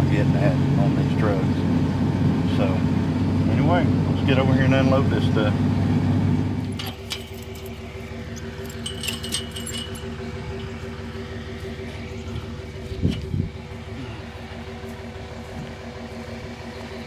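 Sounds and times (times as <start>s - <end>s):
truck engine idling: 0.0s - 17.0s
metal clinking and rattling: 6.7s - 13.6s.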